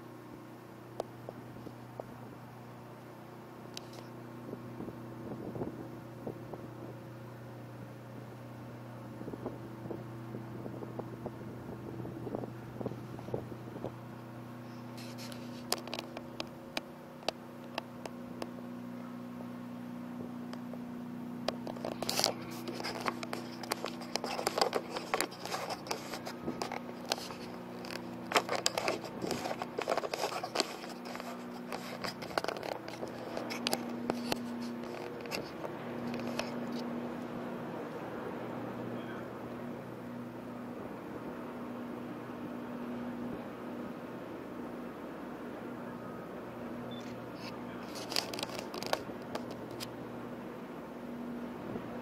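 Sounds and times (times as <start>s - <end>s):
ferry engine hum: 0.0s - 52.0s
sharp clicks and scraping crackles: 3.7s - 4.2s, 14.6s - 18.6s, 21.4s - 38.0s, 46.9s - 50.0s.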